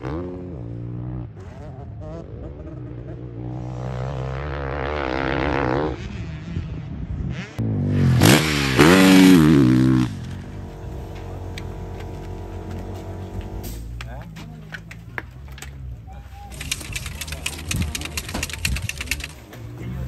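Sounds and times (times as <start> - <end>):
motocross bike engine revving: 0.0 - 10.6.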